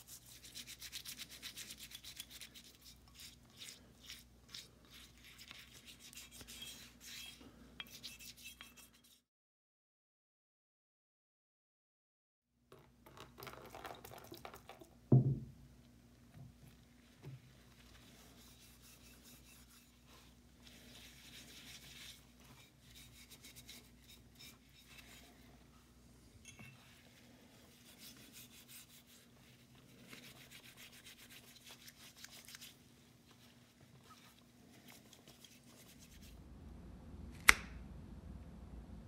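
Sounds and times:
gloved hands scrubbing metal parts: 0.0 - 9.2, 17.1 - 25.8, 27.6 - 36.4
solvent pouring: 12.7 - 15.3
loud thump: 15.1 - 15.5.

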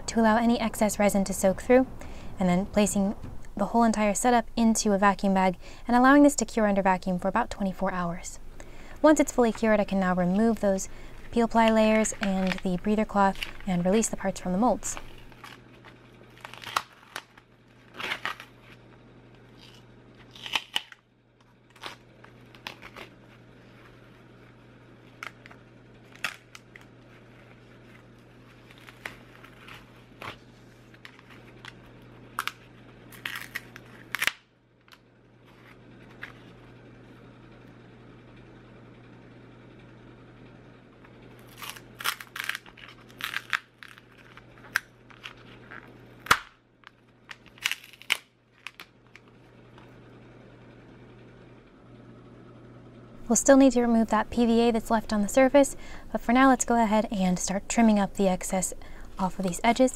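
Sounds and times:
low steady hum: 0.0 - 59.9
cloth crackling and crinkling: 10.2 - 18.9, 21.6 - 34.3.

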